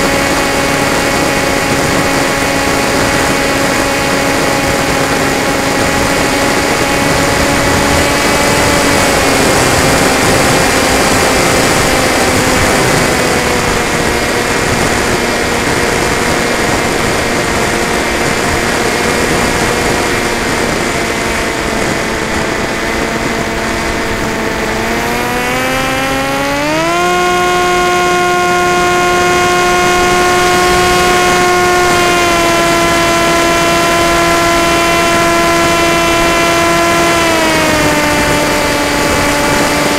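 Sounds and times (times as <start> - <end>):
electric motor and propeller whining: 0.0 - 39.9.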